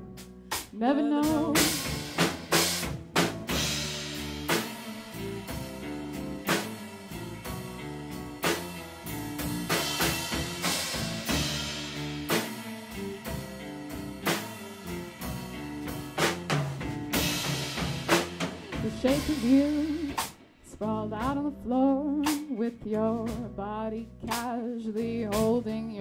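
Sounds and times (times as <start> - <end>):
drum kit hitting: 0.0 - 20.4
live band playing: 0.0 - 20.4.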